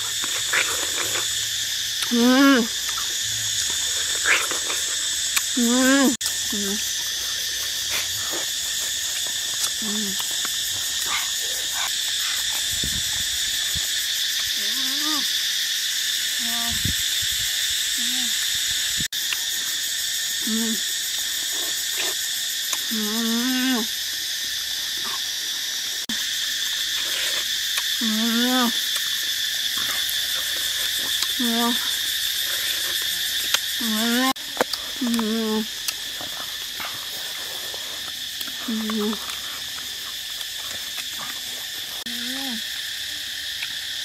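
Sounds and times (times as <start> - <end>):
high-pitched insect drone: 0.0 - 44.0
person humming: 5.6 - 6.8, 9.8 - 10.2.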